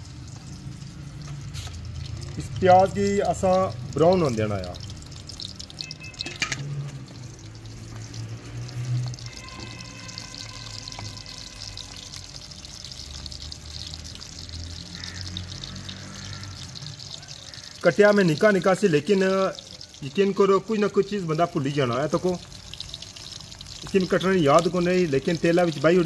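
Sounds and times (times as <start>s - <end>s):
onions sizzling in oil: 0.0s - 26.0s.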